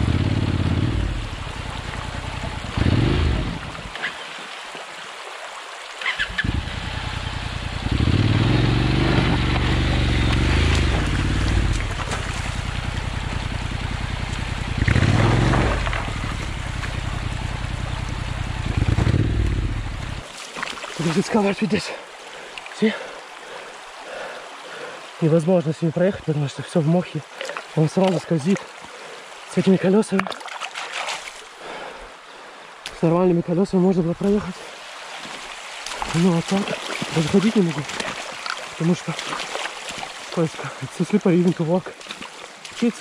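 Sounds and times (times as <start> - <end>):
motorcycle engine revving: 0.0 - 3.8, 6.1 - 20.2
shallow stream trickling: 0.1 - 43.0.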